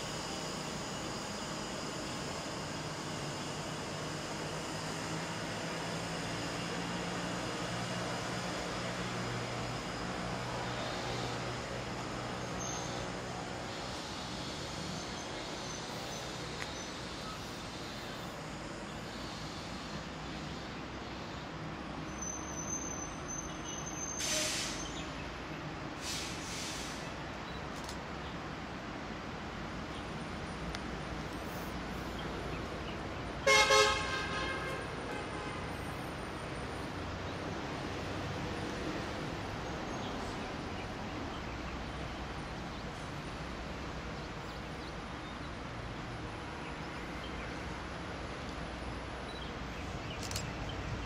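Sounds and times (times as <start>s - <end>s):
train horn blast: 33.4s - 35.8s.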